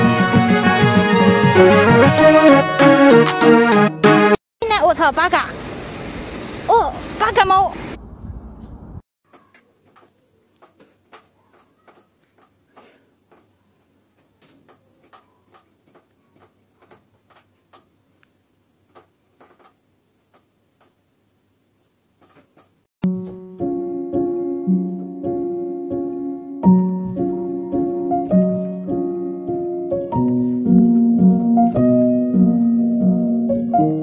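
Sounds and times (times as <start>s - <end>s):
music with plucked notes: 0.0s - 4.4s, 23.0s - 34.0s
faint clicks and taps: 9.3s - 21.0s.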